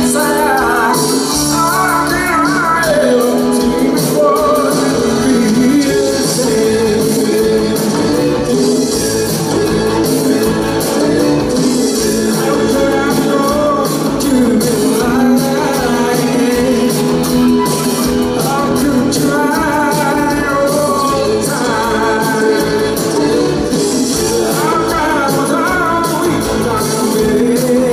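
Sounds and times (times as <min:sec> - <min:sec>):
live band playing: 0:00.0 - 0:27.9
man singing: 0:00.0 - 0:27.9.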